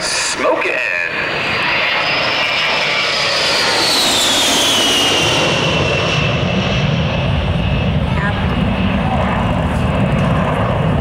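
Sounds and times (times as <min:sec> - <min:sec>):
jet roar with high whine: 0:00.0 - 0:11.0
deep rumble: 0:04.0 - 0:11.0.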